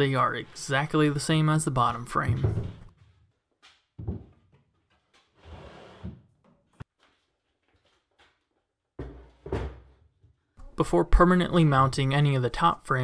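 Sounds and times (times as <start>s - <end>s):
heavy thumps: 4.0s - 4.5s
sliding scrape on wood: 5.3s - 6.2s.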